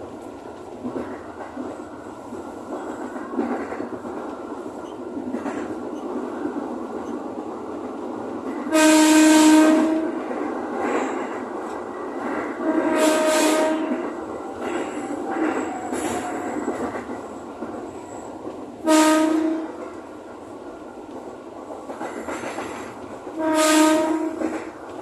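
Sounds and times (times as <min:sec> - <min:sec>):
electric train rumble: 0:00.0 - 0:25.0
train horn: 0:08.7 - 0:10.3, 0:12.6 - 0:14.2, 0:18.8 - 0:19.8, 0:23.4 - 0:24.6.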